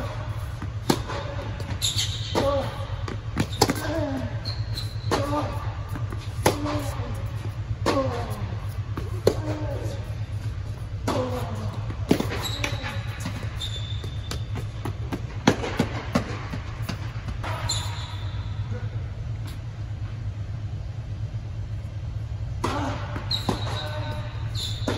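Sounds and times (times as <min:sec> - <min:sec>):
tennis ball bouncing: 0:00.0 - 0:04.1, 0:04.9 - 0:17.7
steady low hum: 0:00.0 - 0:24.9
tennis ball struck by rackets: 0:00.5 - 0:04.0, 0:05.1 - 0:07.0, 0:14.3 - 0:17.6.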